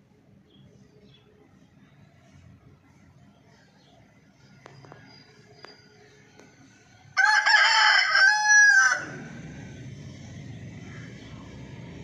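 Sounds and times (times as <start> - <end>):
rooster crowing: 7.2 - 9.4.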